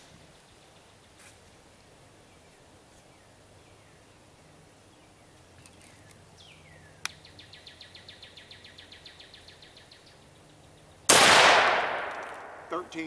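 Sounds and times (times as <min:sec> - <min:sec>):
shotgun shot: 0:11.1 - 0:12.8.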